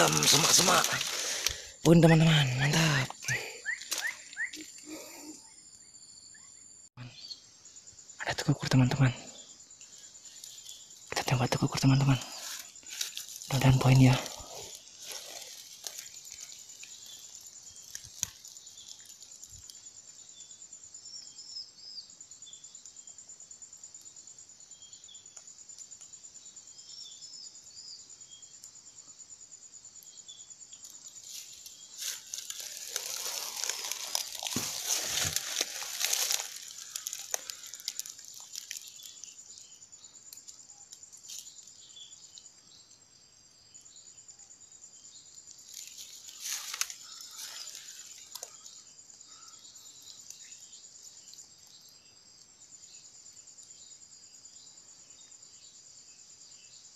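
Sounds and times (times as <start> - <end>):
insects droning: 0.0 - 56.9
rustling in brush: 12.2 - 19.1, 31.1 - 39.1.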